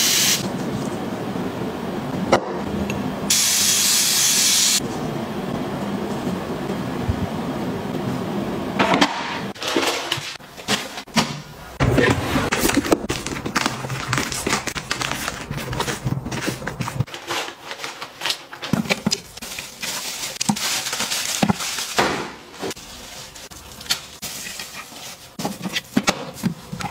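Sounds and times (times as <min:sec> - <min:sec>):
plastic wrapping crinkling: 0:12.5 - 0:25.6.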